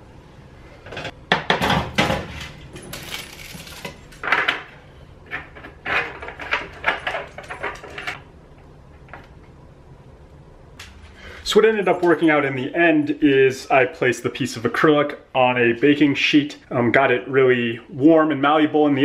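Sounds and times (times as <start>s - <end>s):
foil crinkling: 2.9s - 4.1s.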